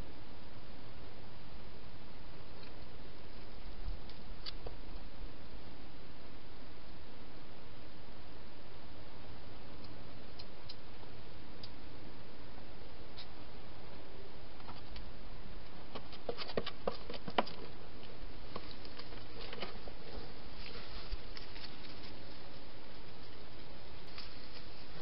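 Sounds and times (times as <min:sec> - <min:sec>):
steady hiss: 0:17.6 - 0:25.0.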